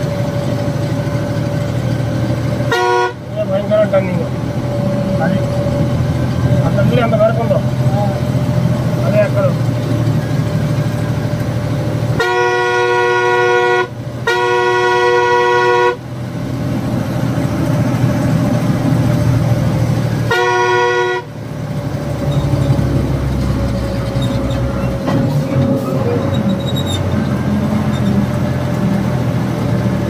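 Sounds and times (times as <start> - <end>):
truck engine running: 0.0 - 30.0
truck horn blasts: 2.6 - 3.6, 12.0 - 16.2, 20.2 - 21.5.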